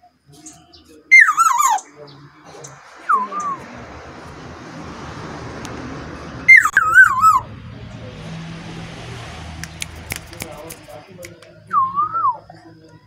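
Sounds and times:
bird fluty whistle: 0:00.4 - 0:01.9, 0:06.5 - 0:07.4, 0:11.7 - 0:12.4.

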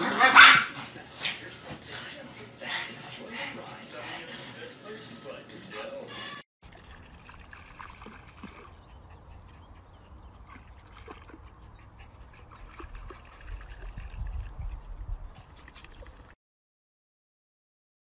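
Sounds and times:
dog splashing through water: 0:06.6 - 0:09.5, 0:10.3 - 0:16.4
stream water trickling: 0:06.6 - 0:16.4.

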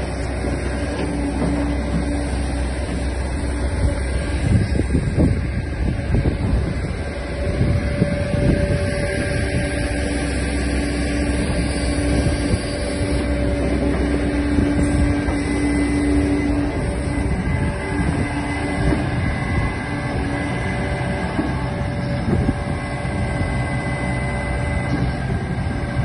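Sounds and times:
excavator diesel engine running: 0:00.0 - 0:26.0
hydraulic whine: 0:00.0 - 0:26.0.

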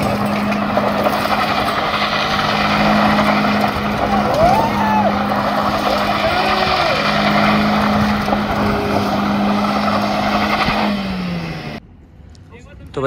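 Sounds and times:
engine running at high revs: 0:00.0 - 0:11.8
loud rushing noise: 0:00.0 - 0:11.8.

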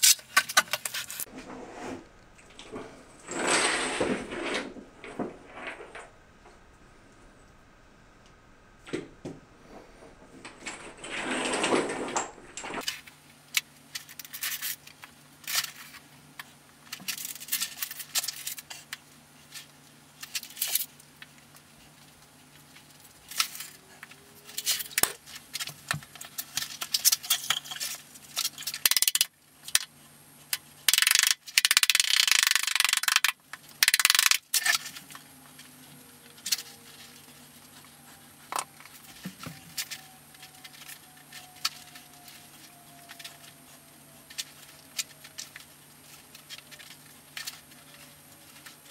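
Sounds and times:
scraping: 0:00.0 - 0:06.6, 0:09.6 - 0:12.9
mosaic tiles clicking and clinking: 0:28.6 - 0:29.3, 0:30.9 - 0:34.9.

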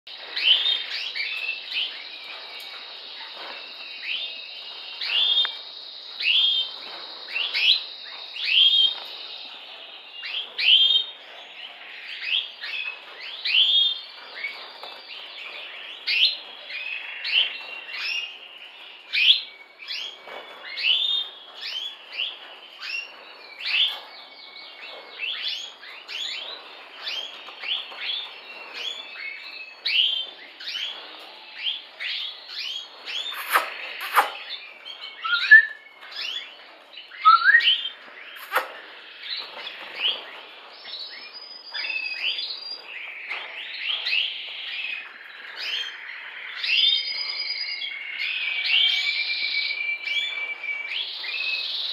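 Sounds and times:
canary chirping: 0:24.9 - 0:40.2.

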